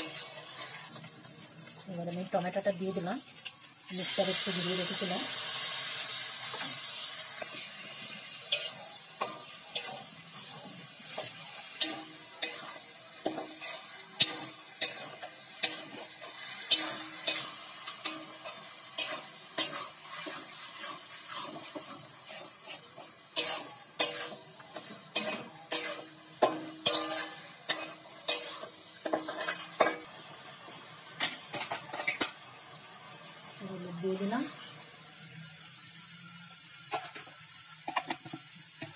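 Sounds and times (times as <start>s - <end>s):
spatula scraping metal pan: 0.0s - 1.0s, 7.4s - 30.0s
oil sizzling: 0.0s - 38.9s.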